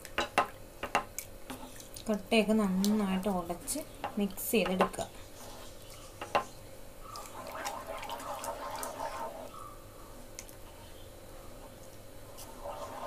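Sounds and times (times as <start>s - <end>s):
spatula mashing wet mixture: 7.1s - 9.5s.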